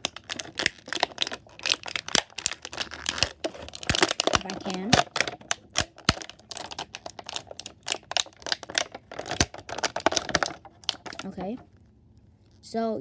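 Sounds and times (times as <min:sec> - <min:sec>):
plastic packaging crinkling: 0:00.0 - 0:12.7.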